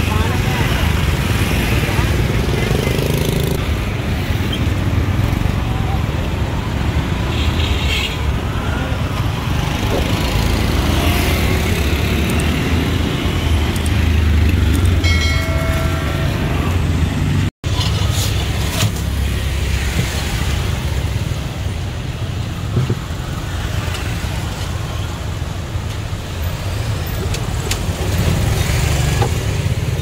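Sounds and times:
street traffic rumble: 0.0s - 30.0s
vehicles passing: 0.0s - 30.0s
pitched tone: 15.0s - 17.5s.

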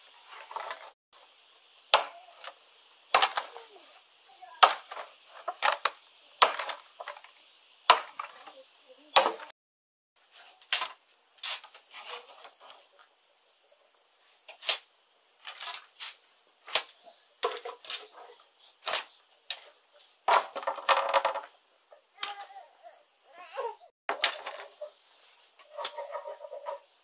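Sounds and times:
machete chopping bamboo: 1.9s - 2.2s, 3.1s - 3.6s, 4.6s - 5.0s, 5.6s - 6.8s, 7.9s - 8.3s, 9.1s - 9.5s, 16.7s - 17.0s.

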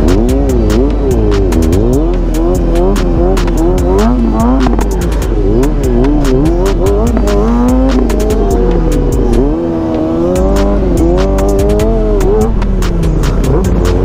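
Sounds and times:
deep bass: 0.0s - 14.0s
hi-hat clicks: 0.0s - 14.0s
hip-hop beat: 0.0s - 14.0s
motorcycle engine revving: 0.0s - 14.0s.

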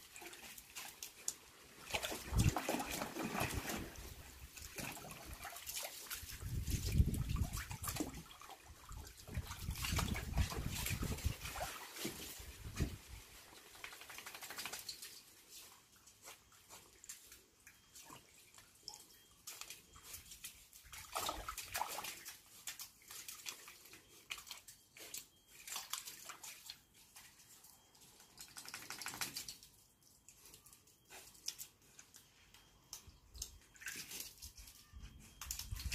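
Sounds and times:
dog splashing in water: 0.0s - 15.3s, 17.9s - 27.6s, 28.4s - 29.7s, 33.7s - 34.4s.

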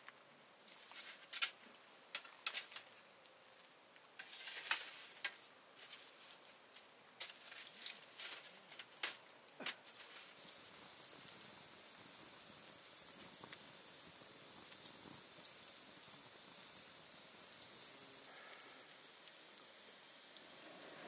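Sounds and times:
rustling: 0.7s - 10.4s.

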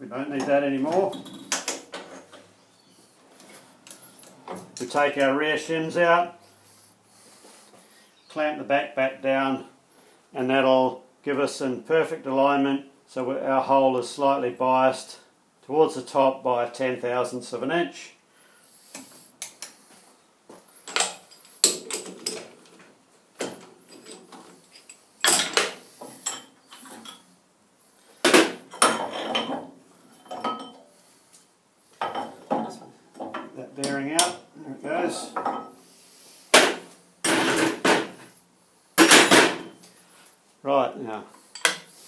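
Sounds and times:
steel clanks and clinks: 23.5s - 27.3s, 28.7s - 30.9s.

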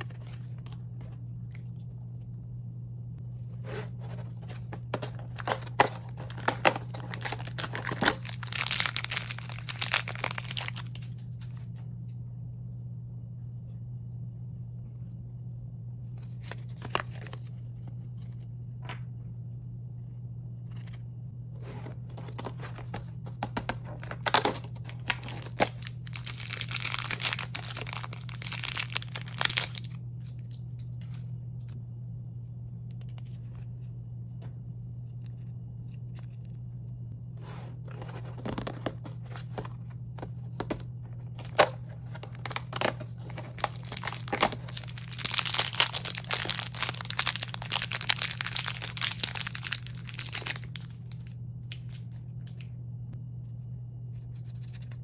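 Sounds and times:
plastic wrappers crinkling and tearing: 5.0s - 11.5s, 23.8s - 30.6s, 41.3s - 52.2s.

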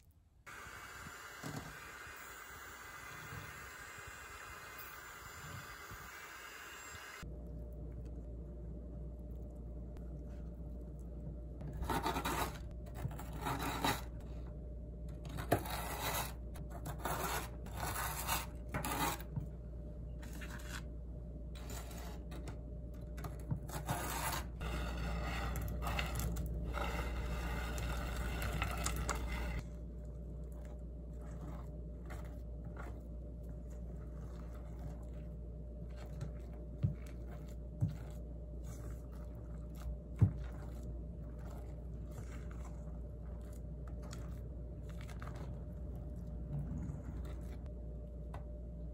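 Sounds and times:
spatula scraping a steel bowl: 11.6s - 14.2s, 15.3s - 19.3s, 23.7s - 29.6s
spatula scraping a wooden board: 11.6s - 14.2s, 15.2s - 19.4s, 23.7s - 29.6s.

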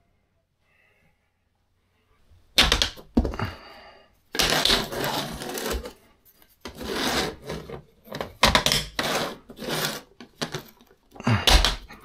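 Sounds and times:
plastic parts scraping and clicking: 4.3s - 12.0s.

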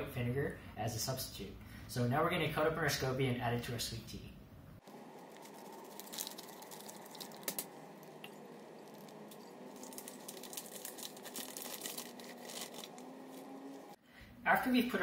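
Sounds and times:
plastic pouch crinkling: 4.8s - 13.9s.

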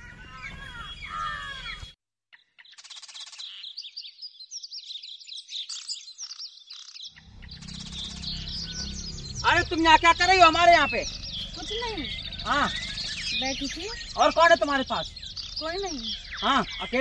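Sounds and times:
bird trill: 0.0s - 17.0s
small birds chirping: 0.0s - 17.0s
low rumble: 7.2s - 17.0s.

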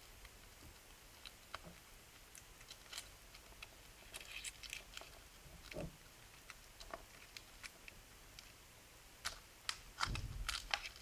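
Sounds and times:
foil wrapper crinkling: 9.2s - 11.0s.

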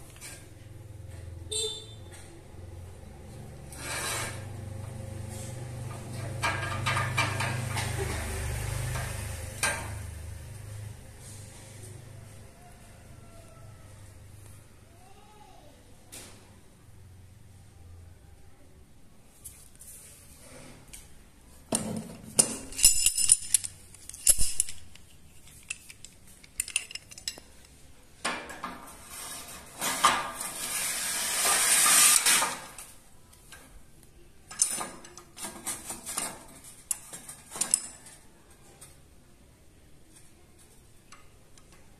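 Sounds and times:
metal scraping on rail: 3.5s - 10.1s, 28.8s - 32.9s
metal parts clinking: 22.3s - 27.8s, 34.5s - 38.2s.

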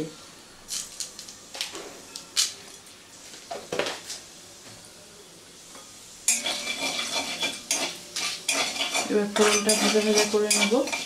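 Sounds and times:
hot oil sizzling: 5.6s - 11.0s
kitchen utensils clinking: 6.3s - 11.0s.

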